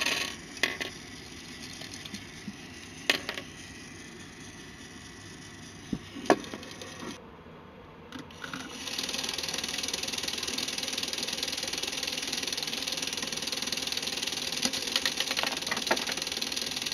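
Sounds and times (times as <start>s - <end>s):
toy motor whirring gears: 0.0s - 7.2s, 8.2s - 16.9s
rapid ticking of moving pistons: 8.5s - 16.9s.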